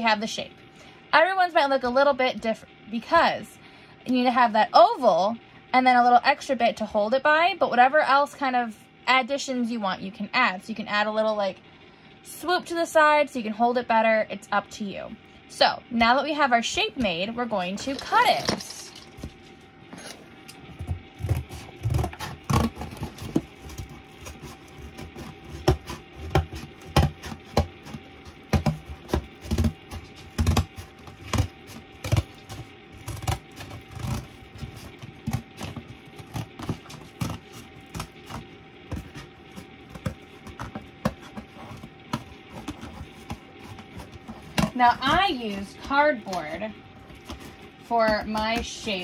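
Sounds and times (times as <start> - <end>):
scissors cutting cardboard: 20.7 - 49.0.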